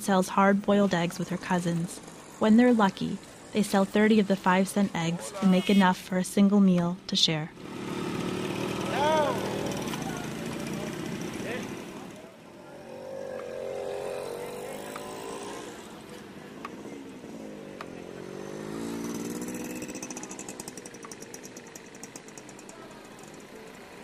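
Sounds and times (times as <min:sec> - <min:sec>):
motorcycle engine revving: 0:07.5 - 0:24.0.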